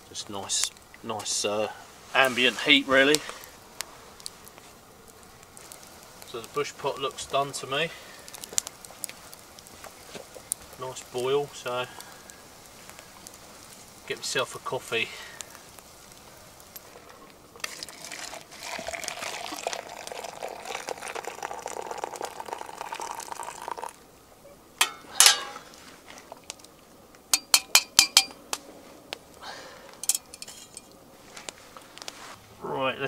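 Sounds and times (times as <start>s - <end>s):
water pouring into metal cup: 17.6s - 24.0s
spoon clinking against metal cup: 27.4s - 28.4s.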